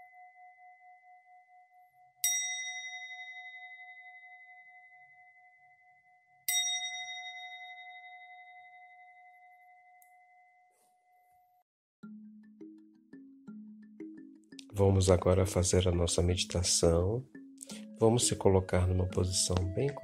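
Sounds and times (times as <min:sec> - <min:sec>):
singing bowl ringing: 0:00.0 - 0:11.4.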